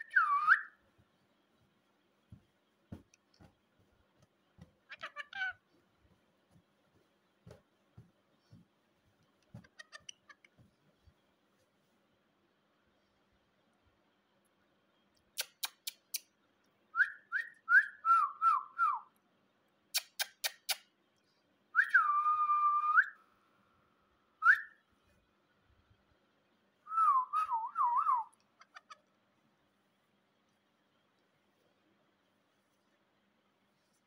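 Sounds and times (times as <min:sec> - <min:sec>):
whistled notes: 0:00.0 - 0:00.8
sharp clicks: 0:15.4 - 0:16.3.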